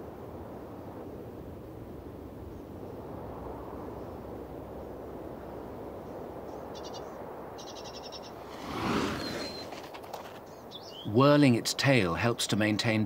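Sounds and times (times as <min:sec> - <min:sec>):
wind hiss: 0:00.0 - 0:10.8
rushing whoosh of air: 0:08.3 - 0:10.0.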